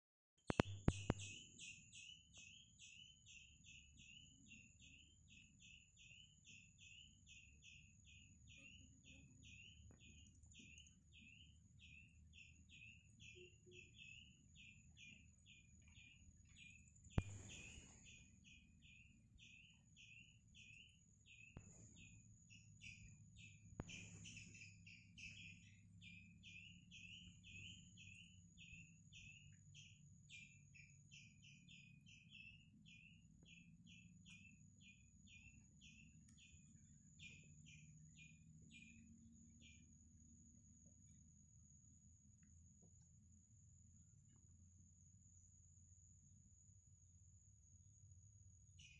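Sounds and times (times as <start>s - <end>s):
sharp clicks: 0.5s - 1.4s, 17.2s - 18.0s, 23.8s - 24.5s
faint high chirping: 0.5s - 48.9s
steady high-pitched whine: 0.6s - 48.9s.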